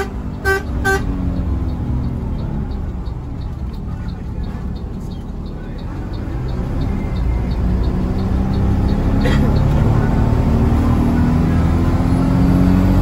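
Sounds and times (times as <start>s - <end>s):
bus diesel engine running: 0.0s - 13.0s
light repeating tick: 1.1s - 10.1s.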